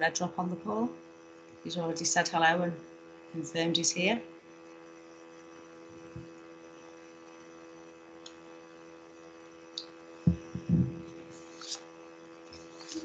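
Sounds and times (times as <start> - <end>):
electrical hum: 0.0 - 13.0
low thumps: 10.3 - 11.2.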